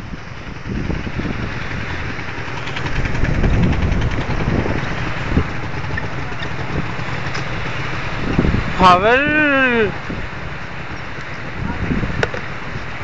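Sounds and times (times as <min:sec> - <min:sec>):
low thumps and rumbles: 0:00.0 - 0:12.8
river rushing: 0:00.0 - 0:13.0.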